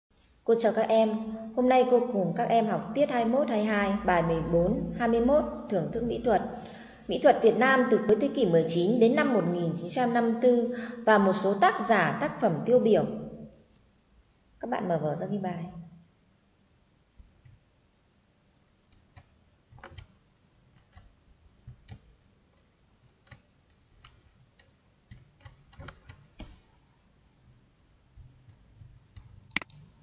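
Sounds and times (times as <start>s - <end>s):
computer mouse clicks: 18.9s - 22.2s, 23.0s - 26.7s, 28.1s - 30.0s.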